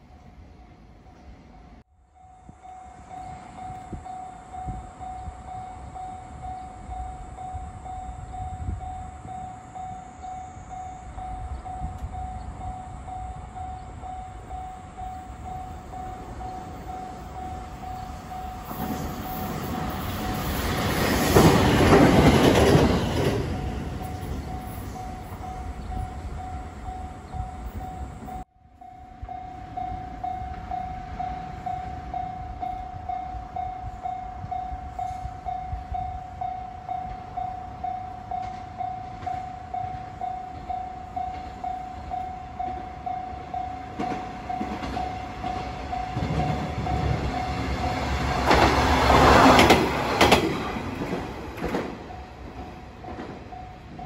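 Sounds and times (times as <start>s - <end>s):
diesel railcar passing: 0.0s - 54.0s
electric train rumbling past: 0.0s - 54.0s.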